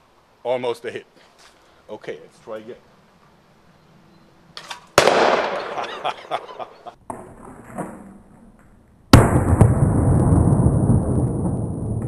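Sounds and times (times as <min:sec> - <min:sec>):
bottle bursting bang: 0:05.0 - 0:06.0, 0:09.1 - 0:10.1.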